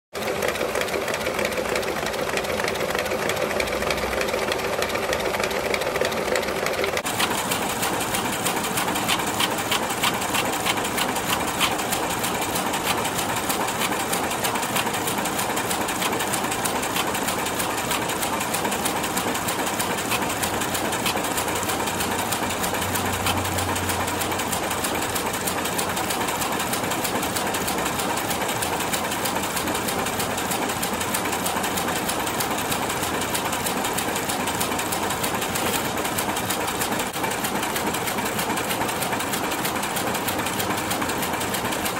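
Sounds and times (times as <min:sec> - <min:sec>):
fast clicks of sheets feeding: 0:06.6 - 0:41.9
photocopier whirring: 0:07.0 - 0:25.0.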